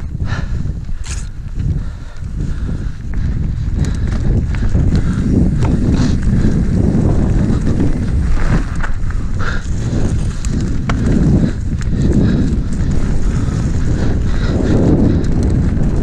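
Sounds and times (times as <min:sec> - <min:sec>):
bike rattling over bumps: 0:00.0 - 0:16.0
wind rumble on microphone: 0:00.0 - 0:16.0
tyres on dirt: 0:03.6 - 0:16.0.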